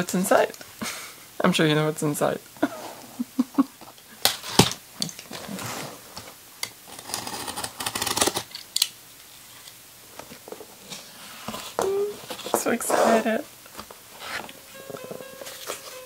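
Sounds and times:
slicing through tape and cardboard: 6.9 - 8.5.

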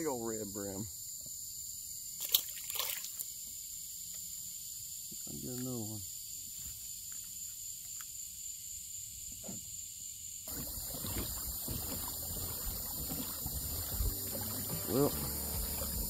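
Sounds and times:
water around boat: 10.5 - 16.0
wind rumble on microphone: 10.5 - 16.0.

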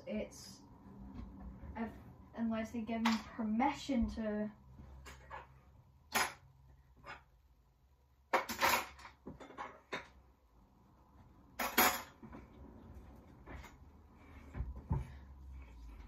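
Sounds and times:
dishes and cutlery clattering: 11.6 - 12.3.

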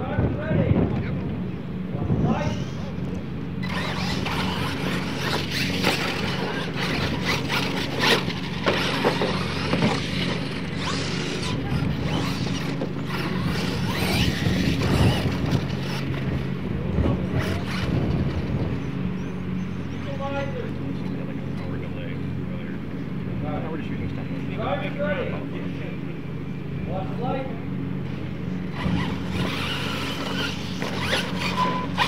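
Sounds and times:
toy truck motors whining: 3.6 - 16.4, 17.2 - 18.5, 28.7 - 32.0.

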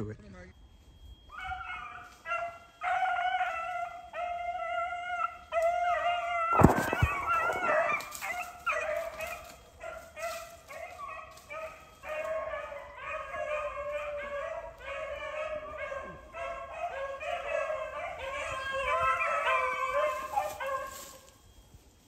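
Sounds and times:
dogs baying: 1.3 - 21.3
sharp cracks: 6.5 - 8.3.

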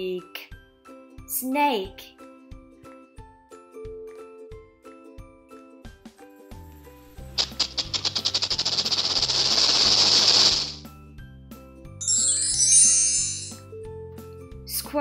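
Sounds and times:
soft background music: 0.0 - 8.1, 10.8 - 15.0
rattlesnake rattling: 7.2 - 10.8
high rapid chirping: 7.4 - 10.8.

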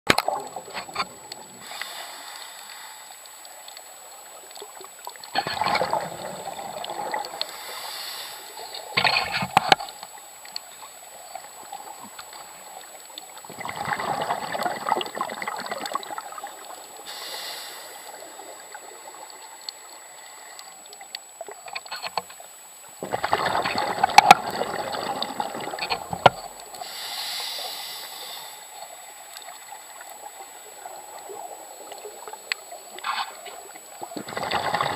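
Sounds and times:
water sloshing and gurgling: 0.1 - 27.1, 28.6 - 34.9
rushes of bubbling water: 3.9 - 7.9, 11.0 - 17.2, 23.0 - 27.0, 33.6 - 34.9.

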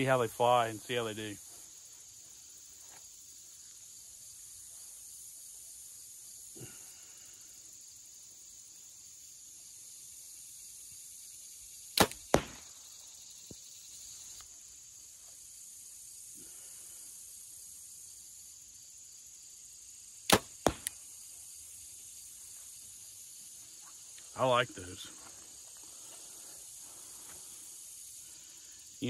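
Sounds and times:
insects chirring: 0.0 - 29.0
bowstring release snap: 12.0 - 12.3, 20.3 - 21.0
arrow hitting bag target: 12.0 - 12.7, 20.3 - 21.0.

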